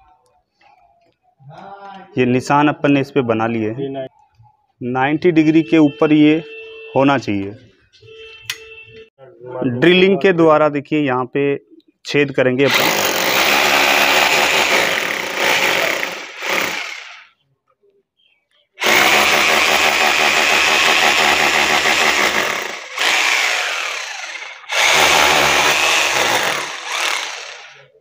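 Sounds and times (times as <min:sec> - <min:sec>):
electric drill boring into wall: 0:12.7 - 0:17.3, 0:18.8 - 0:27.9.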